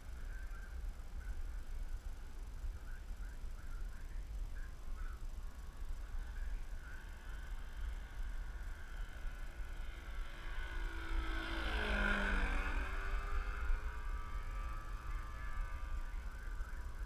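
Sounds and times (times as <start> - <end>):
model plane motor fly-by: 5.1 - 17.0.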